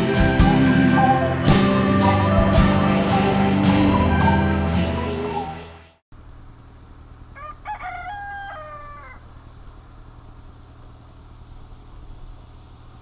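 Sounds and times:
rooster crowing: 7.3s - 9.4s.

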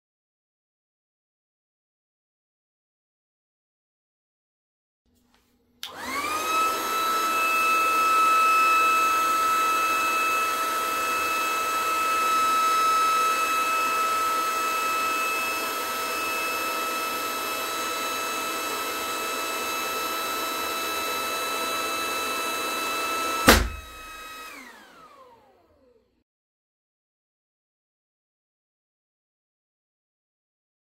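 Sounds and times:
electric balloon pump whine: 5.8s - 26.0s
balloon bursting bang: 23.4s - 24.1s.

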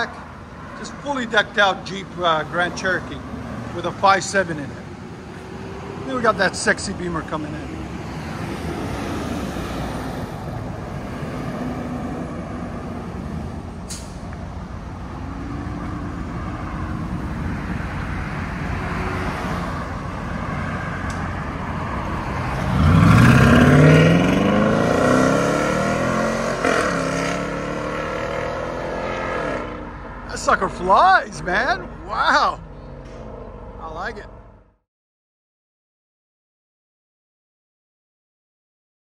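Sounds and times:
car engine accelerating: 14.9s - 30.8s.

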